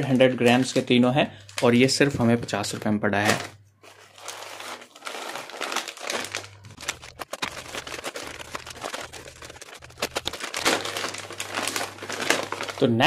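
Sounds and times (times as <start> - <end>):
plastic bag crinkling: 2.8 - 13.0.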